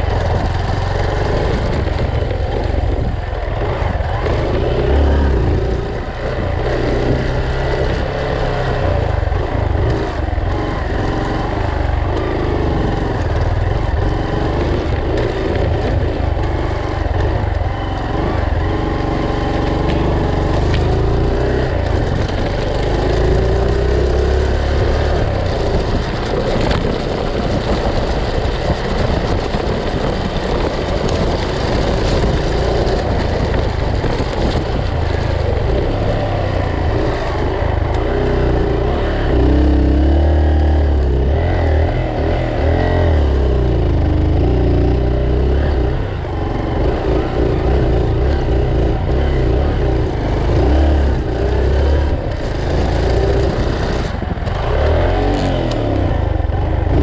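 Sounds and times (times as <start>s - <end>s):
low rumble and rolling noise: 0.0s - 57.0s
motorcycle engine running: 0.0s - 57.0s.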